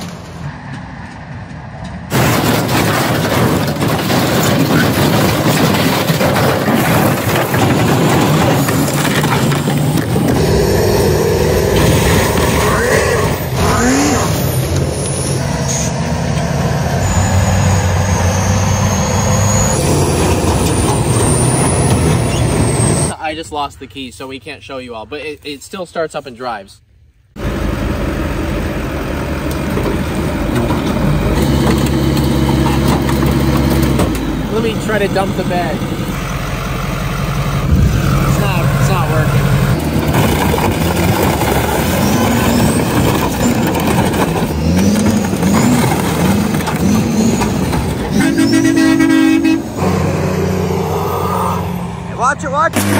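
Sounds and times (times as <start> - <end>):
pickup truck engine under load: 1.9 - 23.2, 27.4 - 51.0, 51.6 - 52.9.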